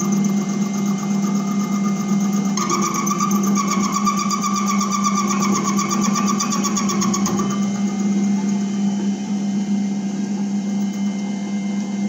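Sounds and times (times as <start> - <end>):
pulsing ringing of metal cutting: 0.0 - 11.2
lathe motor humming: 0.0 - 12.0.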